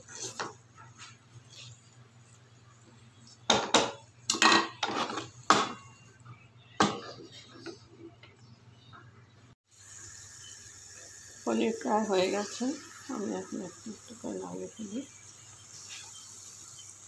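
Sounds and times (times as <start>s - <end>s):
wooden spatula scraping frying pan: 0.0s - 2.5s, 3.2s - 5.5s.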